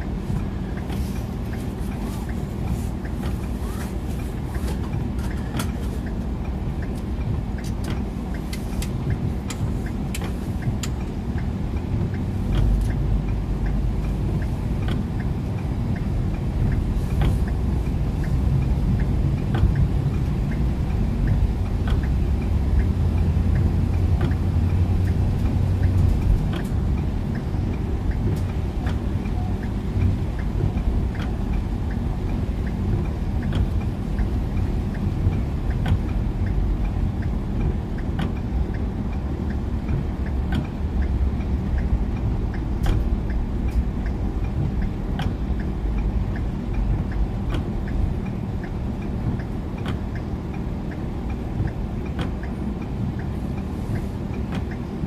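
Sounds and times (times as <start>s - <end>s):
car engine and tyres on wet road: 0.0s - 55.0s
raindrops clicking on car: 0.0s - 55.0s.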